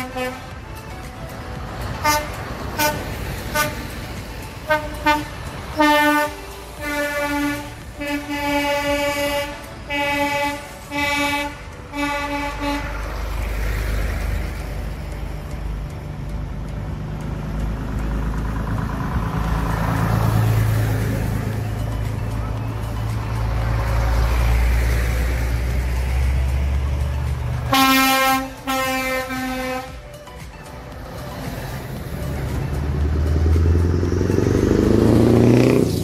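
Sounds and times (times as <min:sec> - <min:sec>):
truck air horn blasts: 0:00.0 - 0:00.5, 0:02.0 - 0:04.0, 0:04.6 - 0:13.1, 0:27.6 - 0:30.1
diesel lorries passing: 0:00.0 - 0:36.0.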